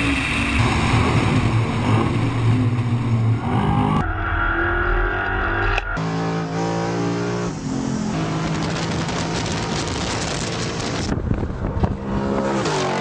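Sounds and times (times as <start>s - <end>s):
wind and tyre noise: 0.0s - 13.0s.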